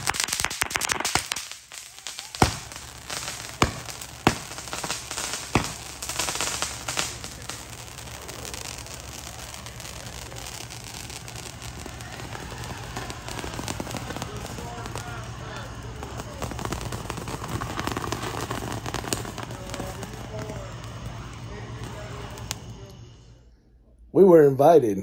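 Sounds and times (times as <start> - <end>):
fireworks bangs: 0.0 - 23.4
fireworks crackling: 0.0 - 23.5.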